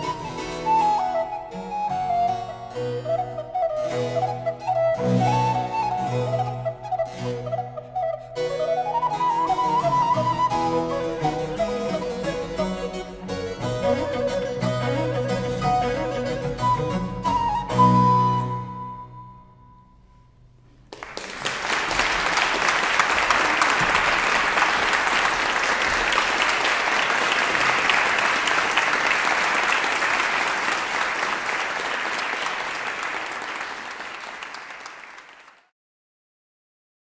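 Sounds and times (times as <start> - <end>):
audience applause: 20.9 - 35.7.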